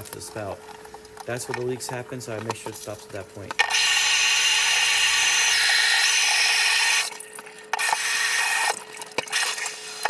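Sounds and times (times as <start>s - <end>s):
water gushing into bathtub: 3.7s - 10.0s.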